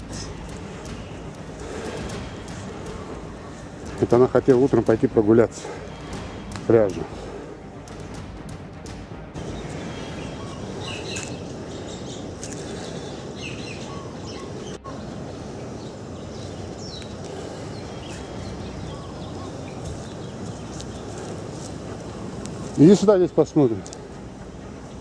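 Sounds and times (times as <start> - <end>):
small birds chirping: 0.0 - 25.0
steady rushing noise: 0.0 - 25.0.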